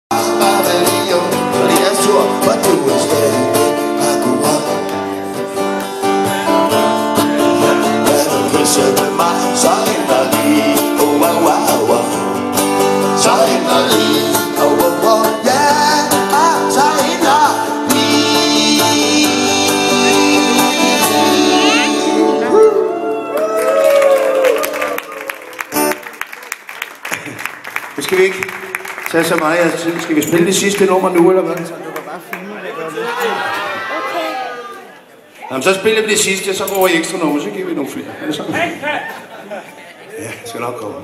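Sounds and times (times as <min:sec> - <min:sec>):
acoustic guitars strummed: 0:00.1 - 0:22.5
man singing: 0:00.1 - 0:23.0.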